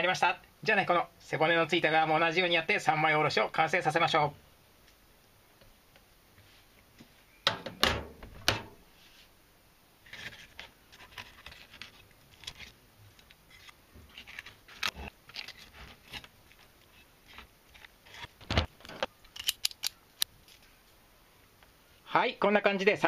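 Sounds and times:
knife scraping over fish bones: 13.5 - 18.3.

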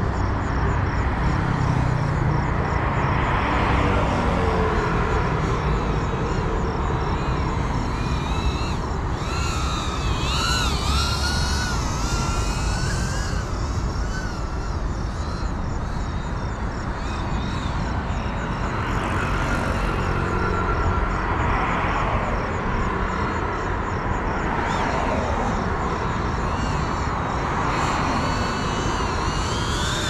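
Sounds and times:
drone propellers whining: 4.2 - 22.5, 24.5 - 30.0.

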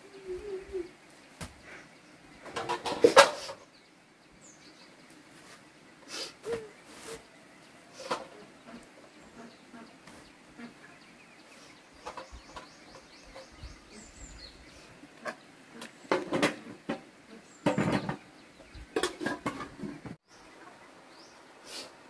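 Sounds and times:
cooking pots and lids clattering: 2.4 - 3.6, 16.1 - 18.2, 19.0 - 20.2.

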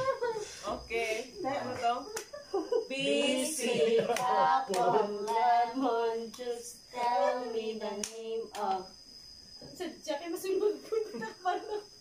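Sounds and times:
voices singing together: 0.0 - 9.0
hand claps: 2.1 - 2.4, 4.1 - 5.5.

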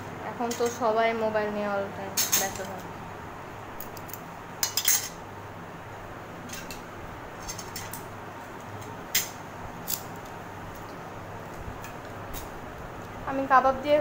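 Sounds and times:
electric fan humming: 0.0 - 14.0
cutlery and plates clinking: 4.6 - 5.2.

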